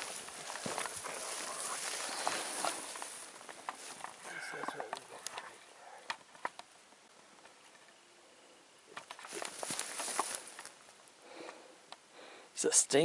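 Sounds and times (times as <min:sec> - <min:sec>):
footsteps in tall grass: 0:00.0 - 0:05.2, 0:09.1 - 0:11.0.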